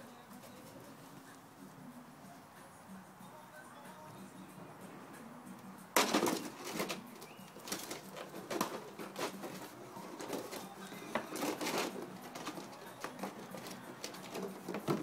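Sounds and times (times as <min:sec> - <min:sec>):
plastic container crinkling and scraping: 0:06.0 - 0:15.0.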